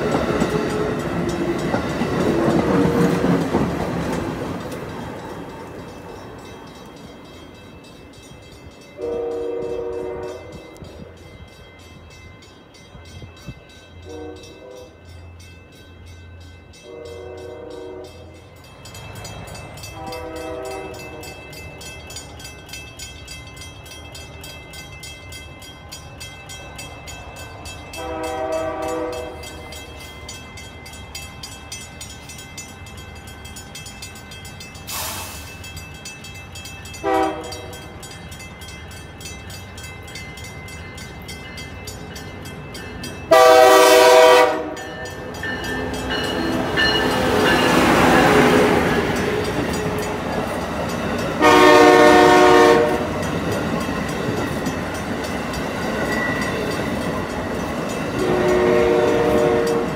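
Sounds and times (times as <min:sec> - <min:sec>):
passing train rumble: 0:00.0 - 0:59.9
multi-chime train horn blasts: 0:08.8 - 0:11.2, 0:13.0 - 0:15.4, 0:16.7 - 0:18.6, 0:19.8 - 0:21.8, 0:27.9 - 0:29.9, 0:37.0 - 0:38.1, 0:43.2 - 0:50.2, 0:51.3 - 0:53.4, 0:58.1 - 0:59.9.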